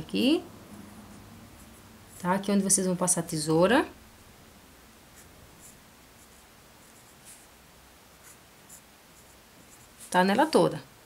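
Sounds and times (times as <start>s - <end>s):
pencil scratching on paper: 5.2s - 7.5s, 8.1s - 10.2s.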